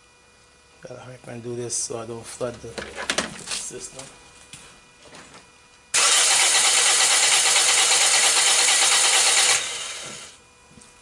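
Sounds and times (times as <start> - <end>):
starter cranking engine: 6.0 - 10.3.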